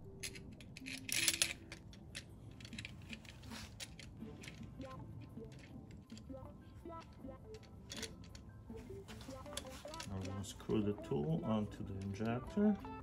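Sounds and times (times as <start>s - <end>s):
metal tool clicking and clinking: 0.0s - 8.5s, 9.2s - 10.8s.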